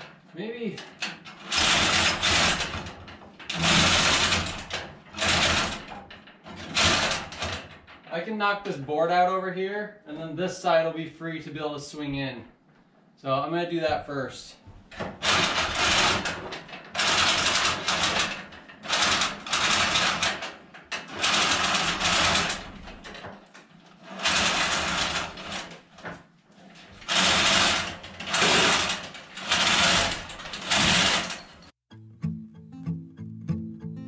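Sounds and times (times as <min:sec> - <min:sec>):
chain rattling through hoist: 0:00.7 - 0:08.1, 0:15.2 - 0:31.7.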